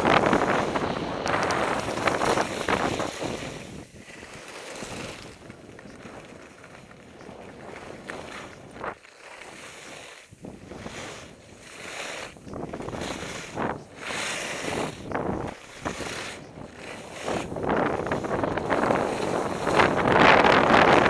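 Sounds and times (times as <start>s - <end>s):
skis scraping over snow: 0.0s - 21.0s
wind buffeting a microphone: 0.0s - 21.0s.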